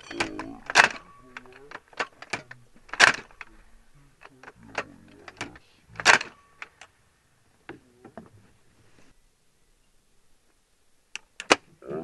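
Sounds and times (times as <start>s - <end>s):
clicks and rattles of handle: 0.0s - 3.5s, 4.2s - 6.9s
metallic clack of gun bolt: 0.0s - 3.5s, 4.4s - 6.9s, 11.2s - 11.6s.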